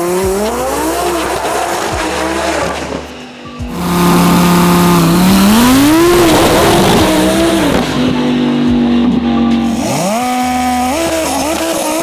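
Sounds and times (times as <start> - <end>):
background music: 0.0 - 12.0
drag car accelerating hard: 0.0 - 12.0.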